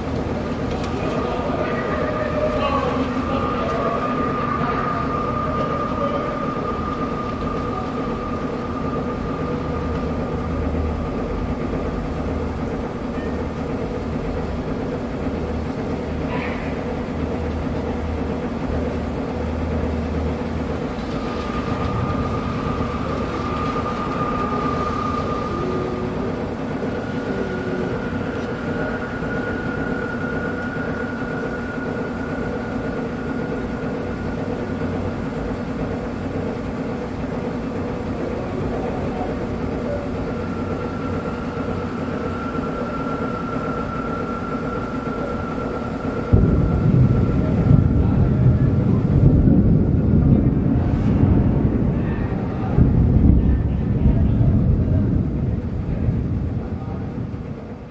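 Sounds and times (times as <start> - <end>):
stormy low rumble: 0.0 - 57.9
sudden loud low rumble: 0.0 - 57.9
faint high tones: 20.8 - 35.0.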